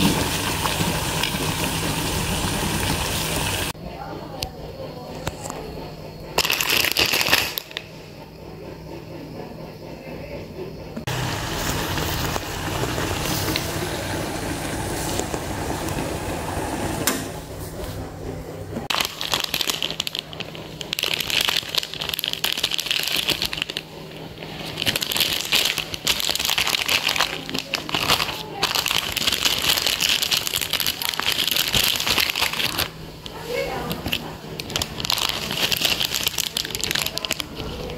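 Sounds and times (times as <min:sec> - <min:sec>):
water boiling in a pot: 0:00.0 - 0:03.8, 0:11.1 - 0:17.1, 0:18.9 - 0:37.9
plastic packet crinkling: 0:06.4 - 0:07.8, 0:18.9 - 0:37.9.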